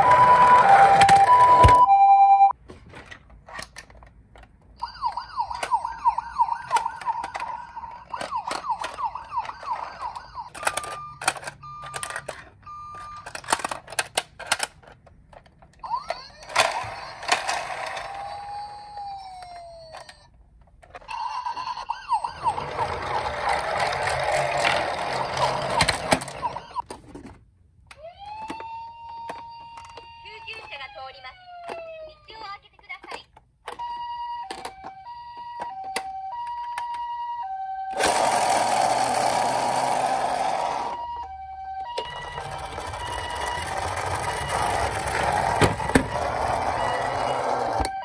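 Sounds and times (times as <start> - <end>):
warbling toy siren: 0.0 - 2.2, 4.8 - 13.8, 15.8 - 20.4, 21.1 - 26.8, 27.9 - 32.4, 33.7 - 48.0
toy two-tone siren: 0.0 - 2.6, 4.8 - 13.8, 15.8 - 20.3, 21.1 - 26.8, 28.0 - 32.4, 33.7 - 48.0
plastic toy handling clicks: 3.0 - 4.6, 10.5 - 18.0.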